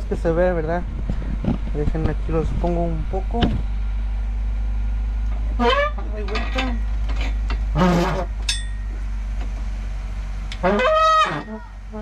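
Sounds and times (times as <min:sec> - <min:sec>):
steady low hum: 0:00.0 - 0:12.0
loud pitched squeal: 0:07.7 - 0:08.4, 0:10.6 - 0:11.7
sharp metallic clink: 0:08.5 - 0:08.9.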